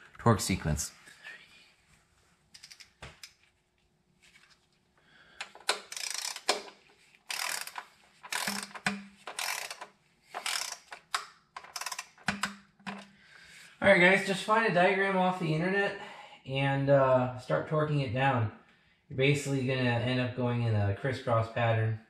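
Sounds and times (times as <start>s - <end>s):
ratchet clicking: 2.6s - 3.0s, 5.4s - 13.0s.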